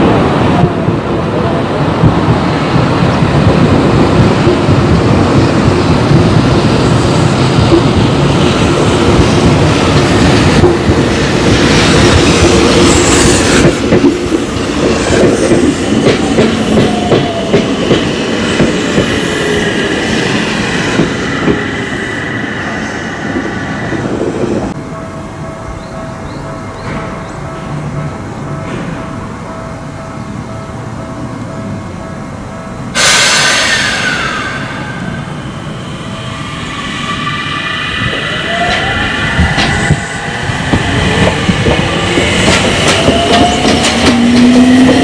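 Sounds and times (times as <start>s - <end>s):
train wheel noise: 0.0s - 45.0s
clacking over rail joints: 40.7s - 45.0s.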